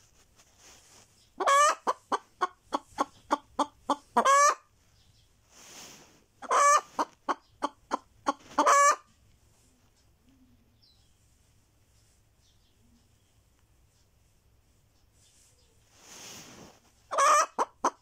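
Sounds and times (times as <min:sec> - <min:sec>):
hen cackling: 0:01.4 - 0:04.7, 0:06.4 - 0:09.1, 0:17.1 - 0:18.0.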